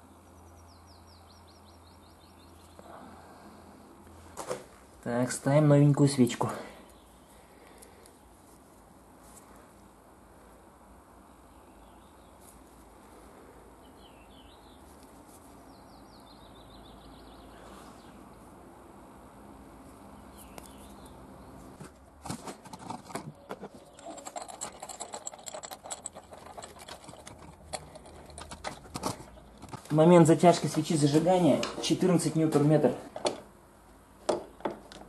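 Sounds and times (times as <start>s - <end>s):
wrench metallic clicks and clinks: 23.8s - 29.7s.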